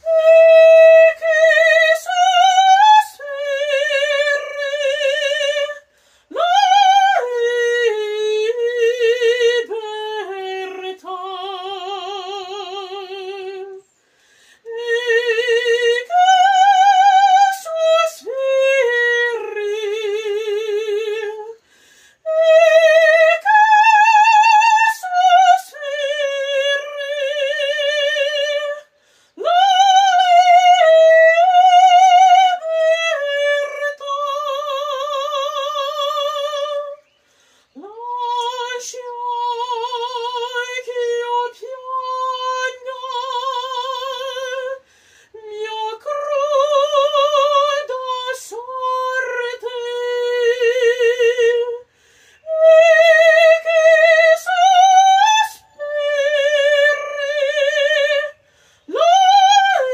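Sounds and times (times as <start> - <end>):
woman singing opera: 0.0 - 13.9, 14.6 - 59.9.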